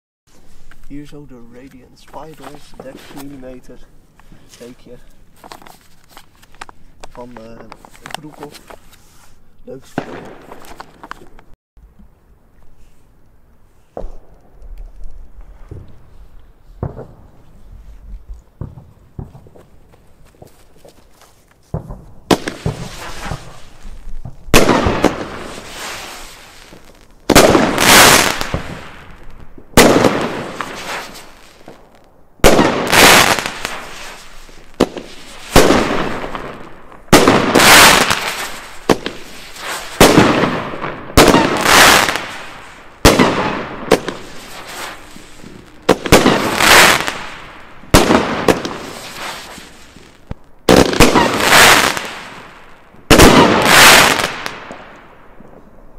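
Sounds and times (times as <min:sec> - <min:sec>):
firework shots launching: 0:09.7 - 0:11.4, 0:16.8 - 0:17.3, 0:21.7 - 0:55.6
firework hissing: 0:21.8 - 0:54.5.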